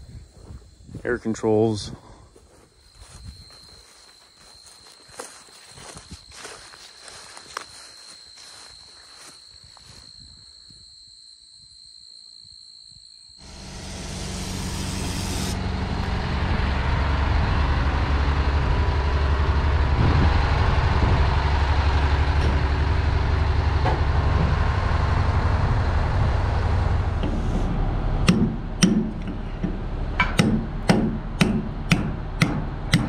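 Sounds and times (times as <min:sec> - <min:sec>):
truck diesel engine rumbling: 0:13.4 - 0:33.0
short air hiss: 0:14.2 - 0:15.6.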